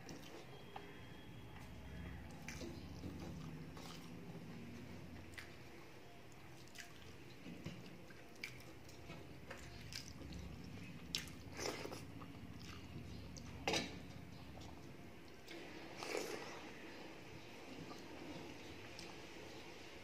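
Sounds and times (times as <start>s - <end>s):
person chewing: 2.3s - 4.3s, 6.3s - 13.5s, 14.6s - 16.7s.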